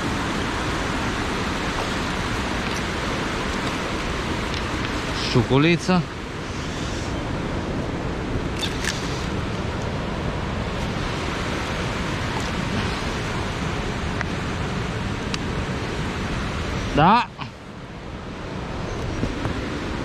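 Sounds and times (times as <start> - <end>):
water pouring over waterfall: 8.5 - 9.5.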